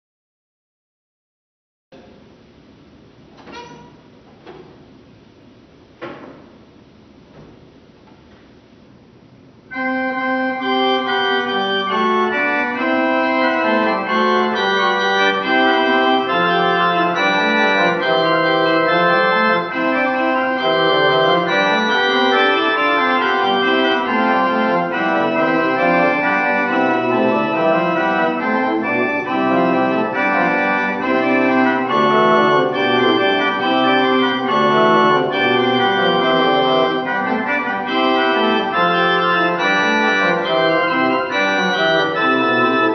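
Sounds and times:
pipe organ playing chords: 9.6 - 42.9.

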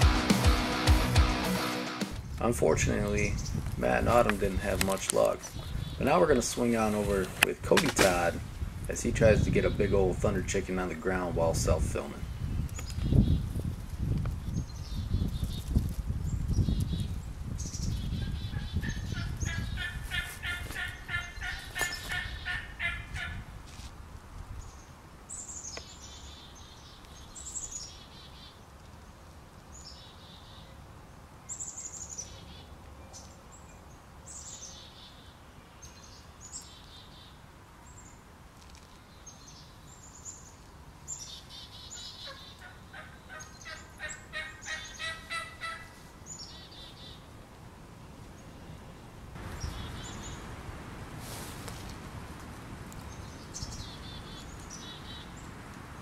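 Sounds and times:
turkey gobbling: 18.6 - 23.4, 42.0 - 46.0
high falling bird chirps: 49.4 - 50.6, 53.0 - 55.6.

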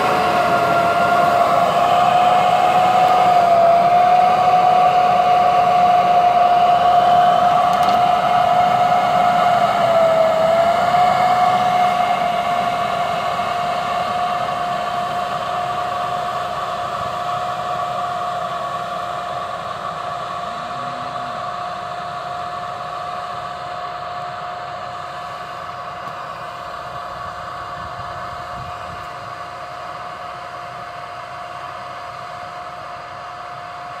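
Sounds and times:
tractor engine running: 0.0 - 30.8
high steady whine: 0.0 - 34.0.

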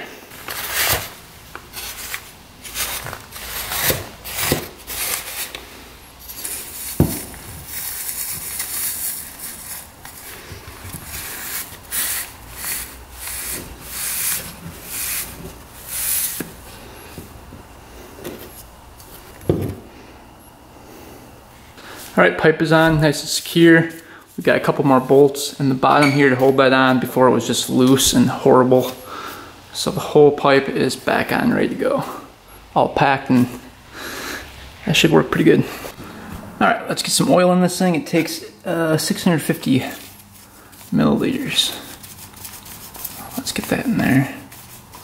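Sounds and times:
wool rustling and scraping: 0.3 - 19.4, 39.2 - 45.0.

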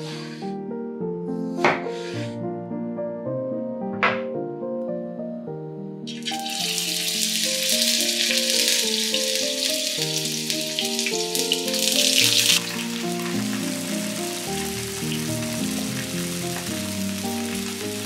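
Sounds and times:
background music: 0.0 - 18.0
potato slices sizzling in oil: 6.1 - 18.0.

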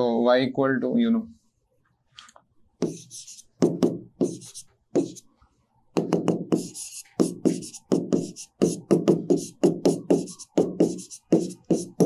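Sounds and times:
chalk writing on blackboard: 2.8 - 5.3, 6.0 - 12.0.

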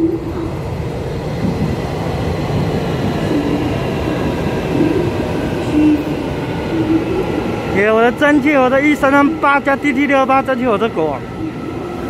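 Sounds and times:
train motor whine rising: 0.0 - 9.4
train wheels rumbling on track: 0.0 - 12.0.

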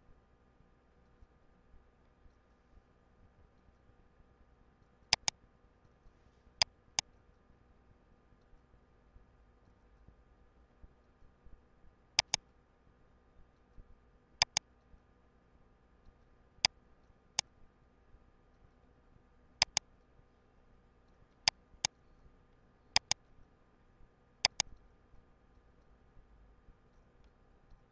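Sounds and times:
faint steady hum: 0.0 - 27.9
mouse button double clicks: 12.2 - 12.4, 19.6 - 19.8, 23.0 - 23.2, 24.4 - 24.7.

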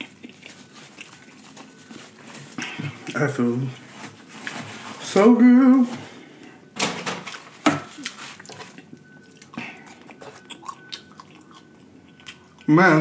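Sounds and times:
paper carton crinkling: 0.4 - 2.6.

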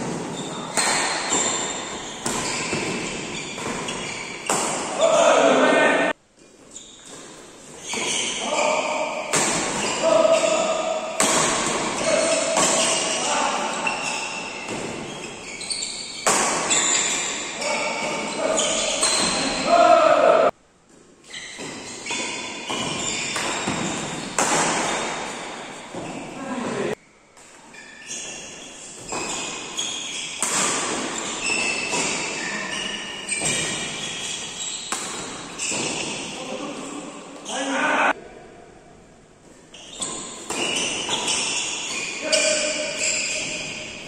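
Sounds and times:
racket striking shuttlecock: 0.0 - 5.0, 30.3 - 32.3, 34.8 - 36.2
shoes squeaking on court: 0.0 - 5.0, 6.4 - 19.8, 20.9 - 37.7, 39.5 - 44.0.

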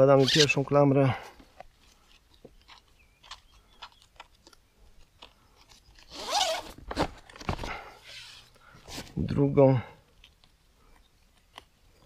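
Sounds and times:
strap rasping through buckle: 0.2 - 0.6, 1.6 - 7.1.

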